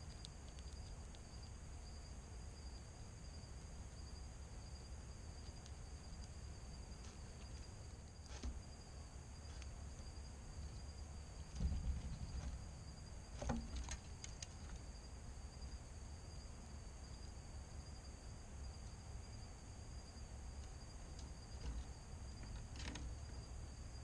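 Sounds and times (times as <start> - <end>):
insects chirring: 0.0 - 24.0
soft knocks and scrapes: 11.4 - 14.8.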